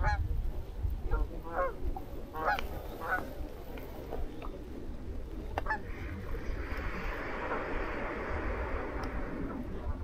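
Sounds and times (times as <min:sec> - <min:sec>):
geese honking: 0:01.1 - 0:03.4, 0:05.6 - 0:06.4
low rumble: 0:03.4 - 0:10.0.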